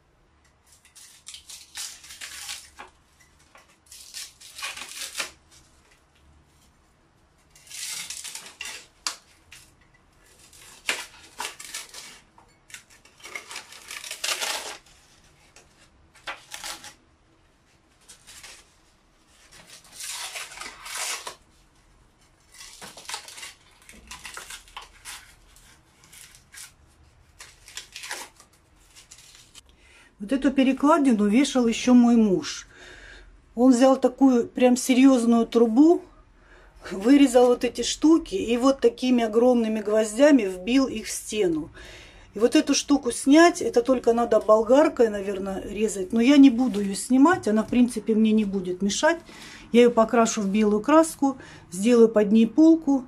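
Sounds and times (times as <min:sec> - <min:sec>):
wallpaper tearing: 0:00.6 - 0:02.9, 0:03.7 - 0:05.6, 0:07.4 - 0:17.0, 0:18.0 - 0:21.5, 0:22.4 - 0:29.6.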